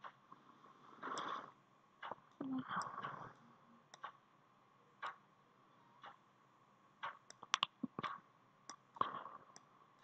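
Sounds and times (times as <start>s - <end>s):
computer mouse clicking: 1.0s - 3.2s, 3.9s - 4.2s, 7.0s - 10.0s.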